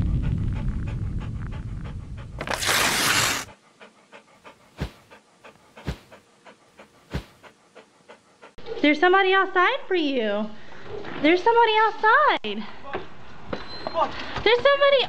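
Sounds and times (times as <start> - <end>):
dog panting: 0.0 - 8.8.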